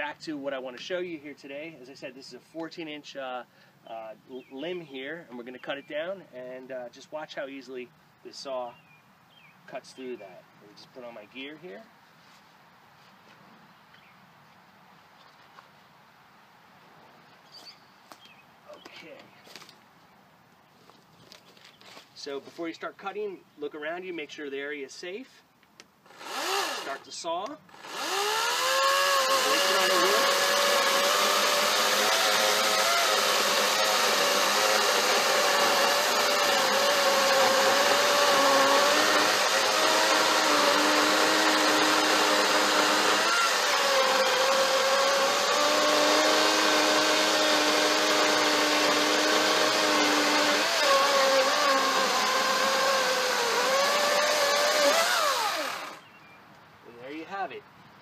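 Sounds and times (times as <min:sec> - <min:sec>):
electric chainsaw whine: 0:26.1 - 0:27.0, 0:27.7 - 0:56.0
chain cutting log: 0:27.8 - 0:56.0.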